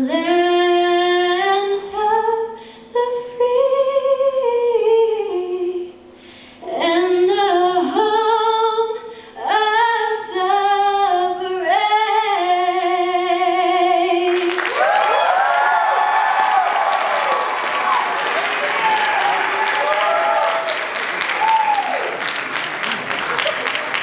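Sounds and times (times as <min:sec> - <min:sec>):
woman singing unaccompanied: 0:00.0 - 0:06.0, 0:06.6 - 0:14.5
audience applause and cheers: 0:14.3 - 0:24.0.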